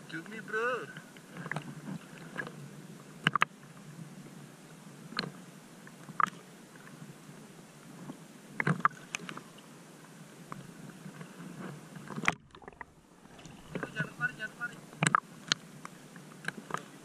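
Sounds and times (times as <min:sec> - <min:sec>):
sea water lapping: 0:10.6 - 0:17.0
short water splashes: 0:12.1 - 0:15.2.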